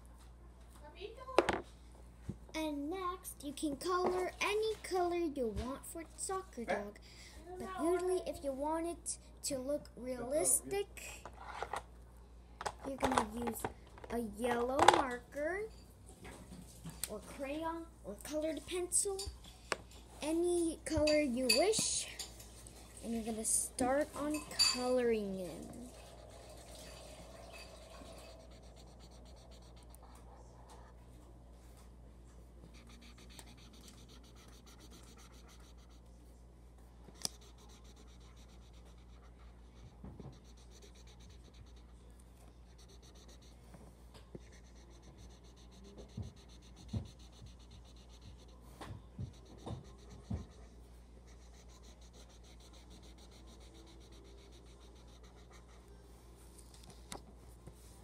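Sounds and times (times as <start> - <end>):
marker scratching on paper: 20.2 - 31.8, 32.6 - 36.2, 37.0 - 58.0.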